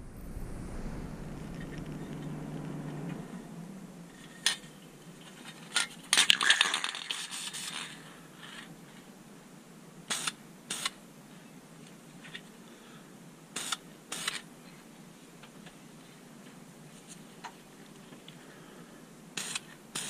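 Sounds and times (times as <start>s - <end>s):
low hum: 0.0s - 6.2s.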